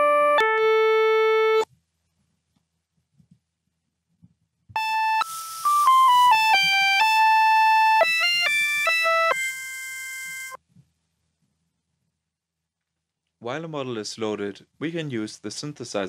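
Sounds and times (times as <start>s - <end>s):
synthesized flute-like melody: 0.0s - 1.6s, 4.8s - 10.6s.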